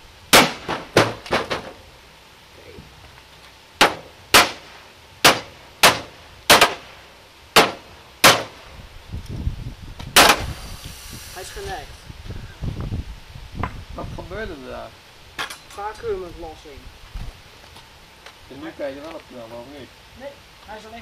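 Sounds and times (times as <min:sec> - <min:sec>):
faint hiss of air: 0:00.0 - 0:21.0
sledgehammer hitting plastic housing: 0:00.4 - 0:01.8.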